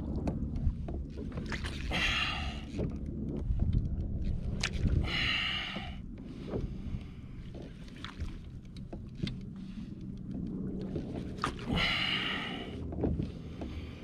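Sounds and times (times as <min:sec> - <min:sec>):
wind on microphone: 0:00.0 - 0:08.5
water lapping against kayak hull: 0:00.0 - 0:14.0
small clicks and knocks: 0:06.5 - 0:11.3.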